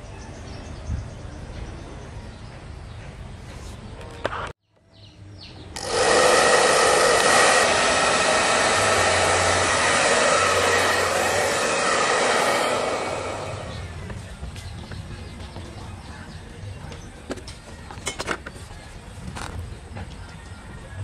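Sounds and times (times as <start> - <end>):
hair dryer blowing: 5.8 - 14.1.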